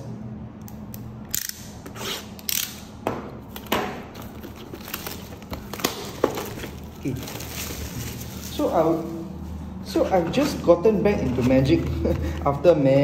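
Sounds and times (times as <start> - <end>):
packaging crinkling and rustling: 4.1 - 9.4.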